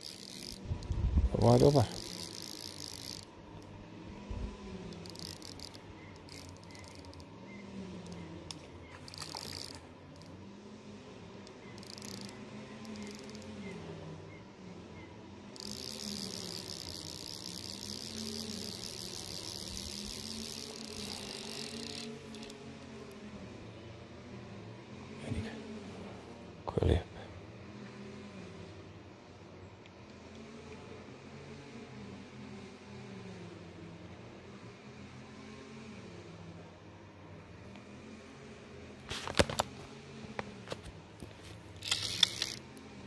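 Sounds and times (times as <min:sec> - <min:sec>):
insects chirring: 0:00.0 - 0:10.6, 0:11.2 - 0:23.2, 0:41.3 - 0:42.8
outdoor background: 0:00.0 - 0:43.0.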